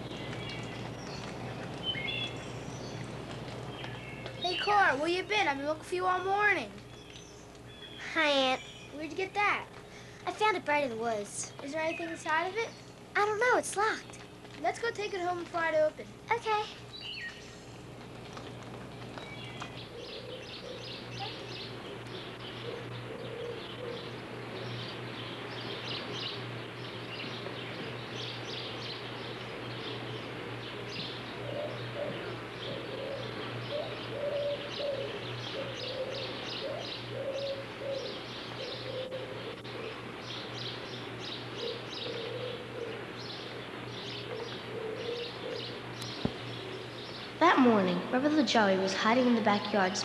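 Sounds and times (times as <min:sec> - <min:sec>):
small birds chirping: 0:00.0 - 0:50.0
steady low hum: 0:00.0 - 0:50.0
dove cooing: 0:18.2 - 0:50.0.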